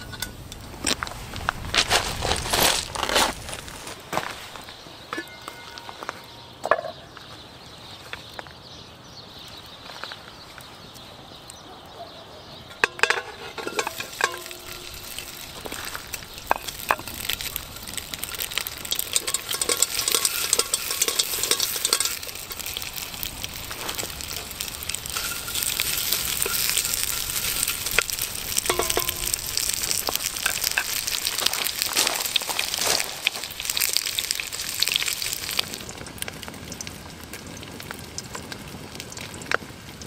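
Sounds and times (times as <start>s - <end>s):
metallic clinks on pot: 12.7s - 23.5s, 24.2s - 31.4s
pork fat sizzling in pot: 12.8s - 40.0s.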